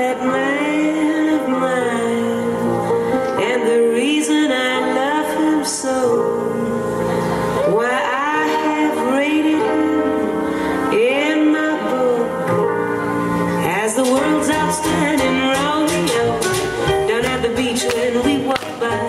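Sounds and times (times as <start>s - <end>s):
song with singer and band: 0.0s - 19.0s.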